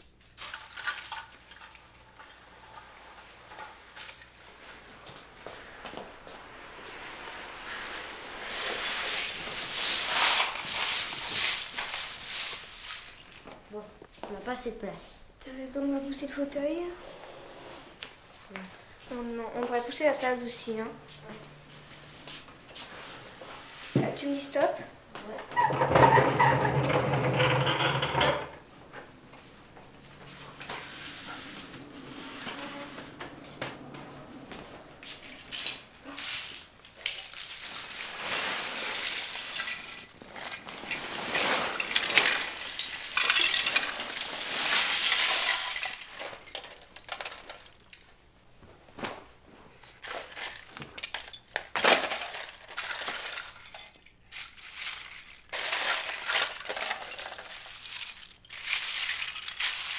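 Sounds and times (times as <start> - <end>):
furniture scraping across tiles: 2.4 - 12.8, 16.9 - 18.3, 21.0 - 24.0, 25.4 - 36.7, 37.8 - 43.0
plastic bricks clattering on tile: 25.6 - 28.6, 35.3 - 48.2, 50.0 - 59.9.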